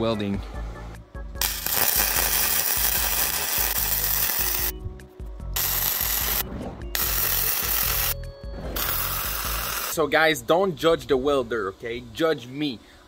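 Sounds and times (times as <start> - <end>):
welding arc crackling: 1.4 - 4.8, 5.6 - 8.2, 8.8 - 10.0.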